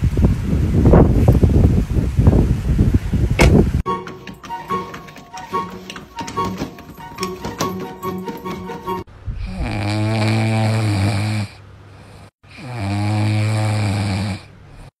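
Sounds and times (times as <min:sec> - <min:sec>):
puppy snoring: 0:09.4 - 0:11.6, 0:12.5 - 0:14.9.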